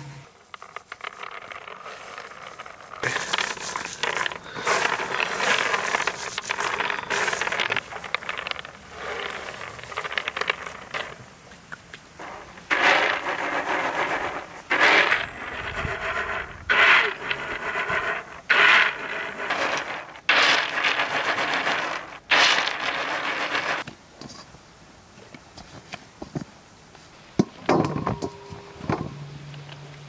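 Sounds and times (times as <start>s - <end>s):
nuts rattling on wooden tray: 0.3s - 23.9s.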